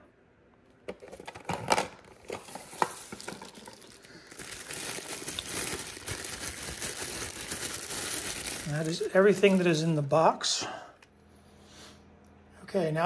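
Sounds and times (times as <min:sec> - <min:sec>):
plastic bag crinkling: 0:01.0 - 0:10.3.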